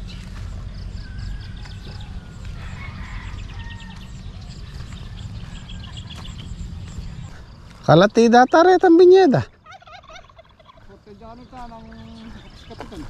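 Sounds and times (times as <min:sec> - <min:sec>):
low rumble: 0:00.0 - 0:08.1
chickens calling: 0:00.0 - 0:13.0
small birds chirping: 0:00.0 - 0:13.0.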